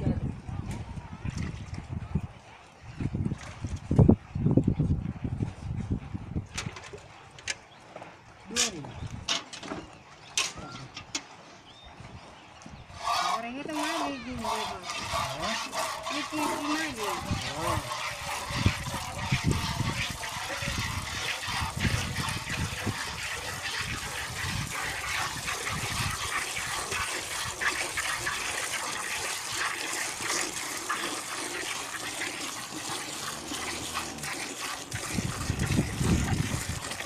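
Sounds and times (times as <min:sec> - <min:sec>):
milk squirting into metal bucket: 0:12.9 - 0:37.0.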